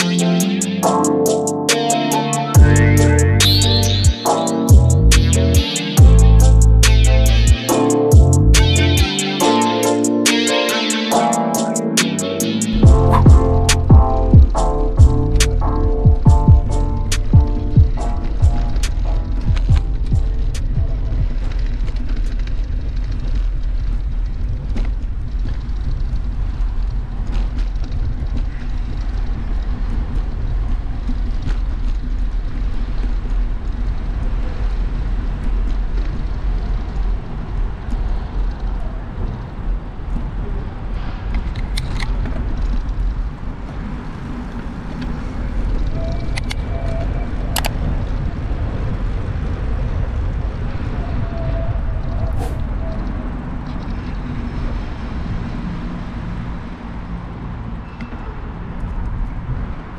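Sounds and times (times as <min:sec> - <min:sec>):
light street traffic: 0:11.7 - 0:59.9
wind on microphone: 0:12.8 - 0:57.7.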